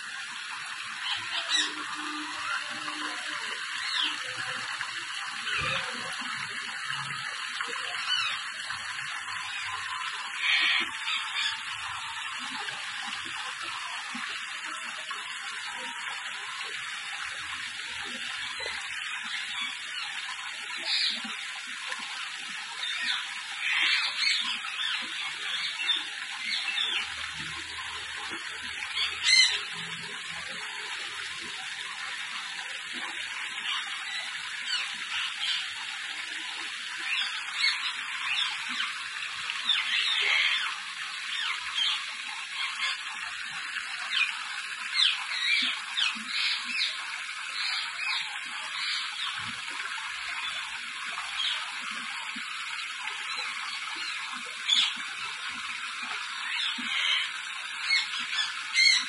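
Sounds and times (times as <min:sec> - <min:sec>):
running splashing water: 0:00.0 - 0:59.0
parrots calling: 0:01.0 - 0:03.2, 0:10.4 - 0:11.6, 0:28.9 - 0:29.6, 0:39.7 - 0:40.7, 0:56.5 - 0:59.0.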